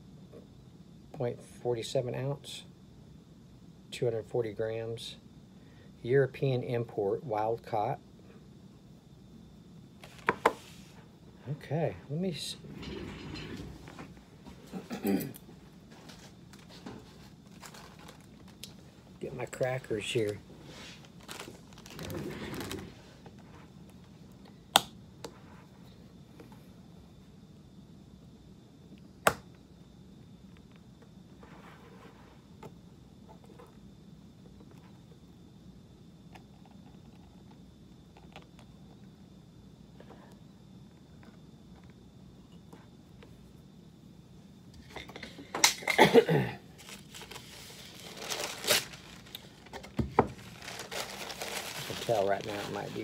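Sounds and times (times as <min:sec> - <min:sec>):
paper wrapping rustling: 0:16.0 - 0:18.6, 0:20.2 - 0:22.9, 0:46.8 - 0:53.0
paper towels tearing: 0:46.8 - 0:49.5, 0:50.4 - 0:53.0.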